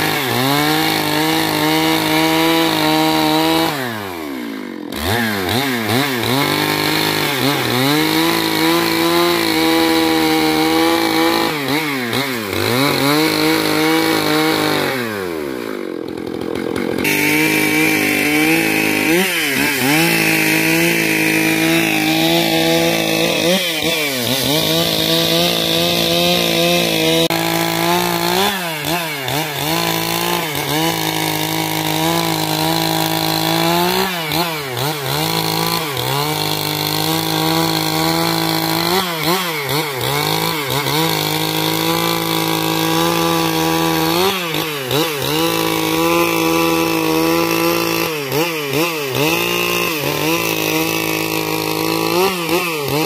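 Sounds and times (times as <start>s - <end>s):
chainsaw cutting through log: 0.0s - 53.0s.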